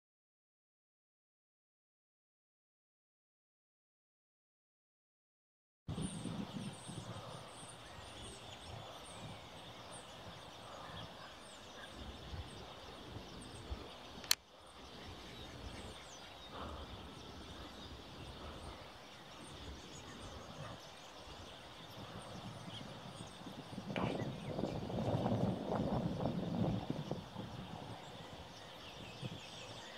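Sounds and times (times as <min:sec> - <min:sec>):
small birds chirping: 0:05.9 - 0:29.9
sharp click: 0:14.2 - 0:14.4.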